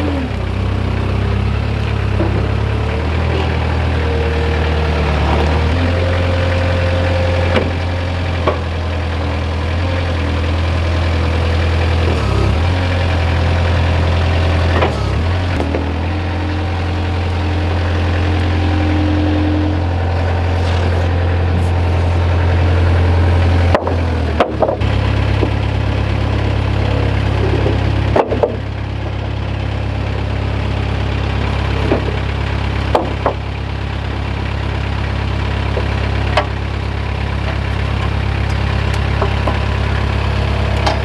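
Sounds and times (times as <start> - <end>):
forklift engine humming: 0.0 - 41.0
knocks and clunks: 2.1 - 2.7, 7.5 - 8.7, 14.7 - 16.1, 23.6 - 24.8, 27.4 - 28.6, 31.8 - 32.2, 32.9 - 33.4, 38.5 - 39.7, 40.8 - 41.0.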